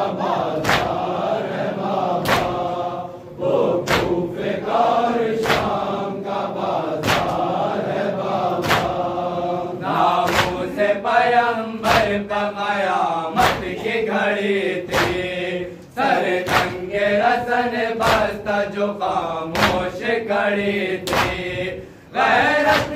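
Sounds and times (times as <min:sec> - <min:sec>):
men chanting in unison: 0:00.0 - 0:22.9
chest-beating slaps: 0:00.5 - 0:01.2, 0:02.0 - 0:02.8, 0:03.8 - 0:04.3, 0:05.3 - 0:05.9, 0:07.0 - 0:07.6, 0:08.5 - 0:09.1, 0:09.9 - 0:10.8, 0:11.8 - 0:12.2, 0:13.3 - 0:14.0, 0:14.8 - 0:15.4, 0:16.2 - 0:16.9, 0:18.0 - 0:18.4, 0:19.5 - 0:20.0, 0:21.0 - 0:21.5, 0:22.4 - 0:22.9.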